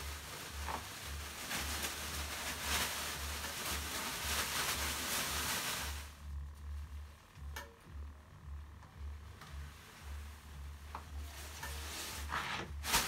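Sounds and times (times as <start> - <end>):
leafy brooms swishing: 0.0 - 6.3, 9.6 - 13.0.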